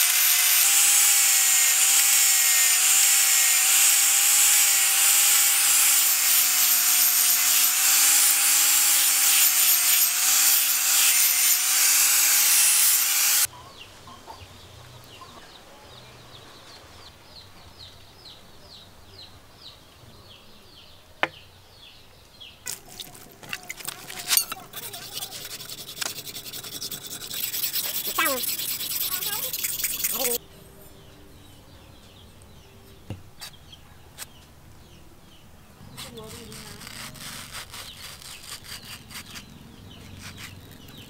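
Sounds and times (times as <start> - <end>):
angle grinder whine on steel: 0.0 - 13.5
blade scraping on sharpening stone: 23.1 - 30.4.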